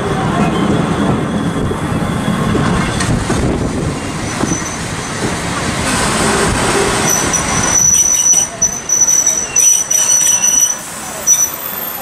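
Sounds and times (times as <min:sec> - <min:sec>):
train wheels rumbling on rails: 0:00.0 - 0:12.0
faint high brake squeal: 0:07.0 - 0:12.0.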